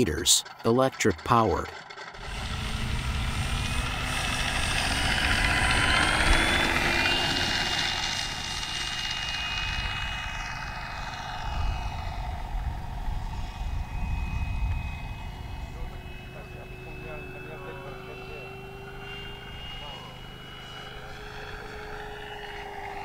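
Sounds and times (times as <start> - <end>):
model plane motor whining: 0.0 - 23.0
low rumble: 2.2 - 19.5.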